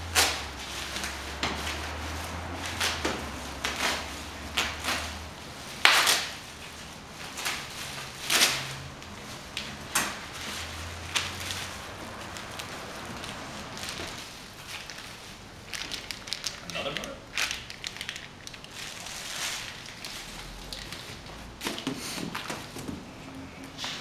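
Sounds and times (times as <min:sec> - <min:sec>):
plastic packaging crinkling: 0:00.2 - 0:21.4
items knocking and clattering: 0:20.7 - 0:23.1.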